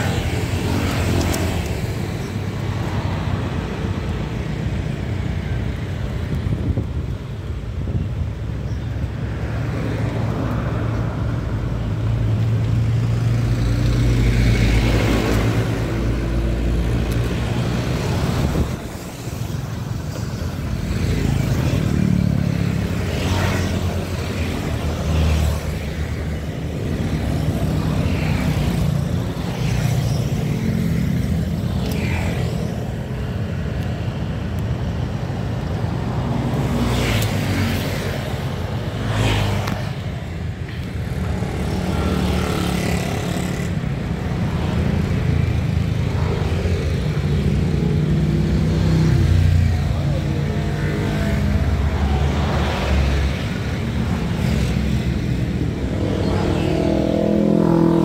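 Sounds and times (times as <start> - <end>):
road traffic passing by: 0.0 - 58.0
motorcycles driving past: 36.3 - 58.0.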